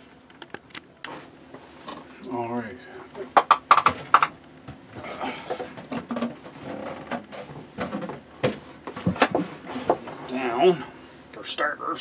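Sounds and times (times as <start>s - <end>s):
tools knocking and clicking: 3.4s - 4.4s.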